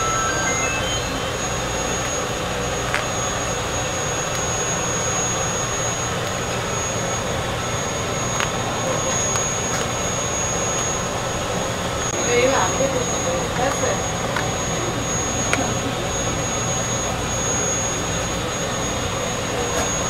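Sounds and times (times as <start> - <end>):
thin high whine: 0.0 - 2.3.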